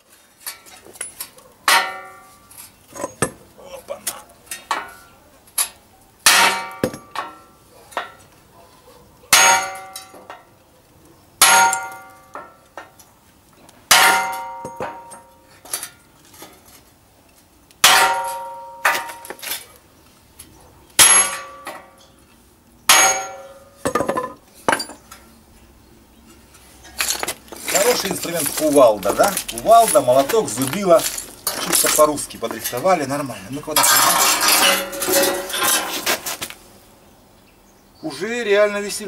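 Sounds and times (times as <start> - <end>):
sledgehammer clanging on metal: 0.3 - 3.4, 4.5 - 8.3, 9.3 - 10.5, 11.4 - 13.0, 13.9 - 16.6, 17.8 - 19.7, 21.0 - 22.2, 22.9 - 25.2, 26.3 - 36.5.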